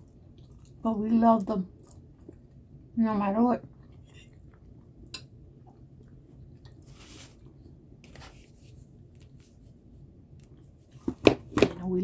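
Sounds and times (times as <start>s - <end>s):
person chewing food: 0.0s - 0.8s, 1.7s - 2.8s, 3.7s - 7.6s.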